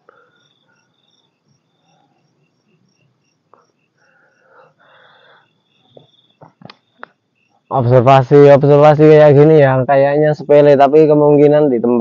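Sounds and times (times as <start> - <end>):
crickets chirping: 0.0 - 12.0
higher insect trill: 0.0 - 12.0.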